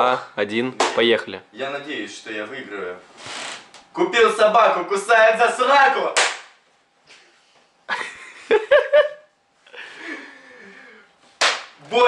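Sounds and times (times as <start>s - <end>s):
young men stifled laughter: 7.9s - 11.1s.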